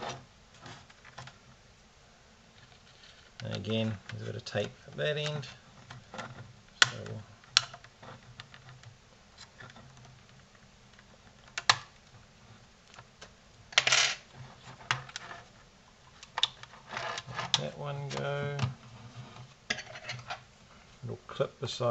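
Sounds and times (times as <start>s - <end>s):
plastic clips snapping: 6.8s - 7.9s.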